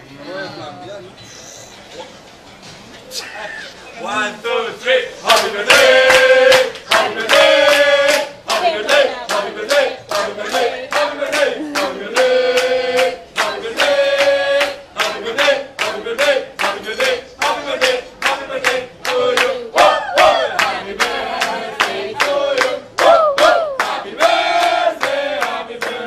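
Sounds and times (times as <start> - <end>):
group singing birthday song: 4.0 - 26.0
hands clapping a beat: 5.3 - 26.0.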